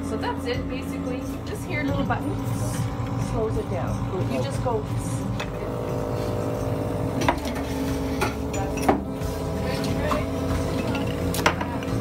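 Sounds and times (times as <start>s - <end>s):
vacuum filler motor hum: 0.0s - 12.0s
glass bottles clinking: 10.1s - 11.8s.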